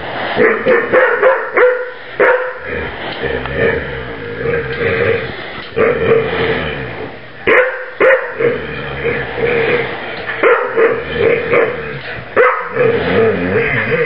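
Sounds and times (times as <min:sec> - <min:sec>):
dogs barking sharply: 0:00.4 - 0:02.6, 0:07.5 - 0:08.5, 0:10.4 - 0:11.8, 0:12.4 - 0:12.8
dogs wavering vocal sound: 0:08.0 - 0:14.0.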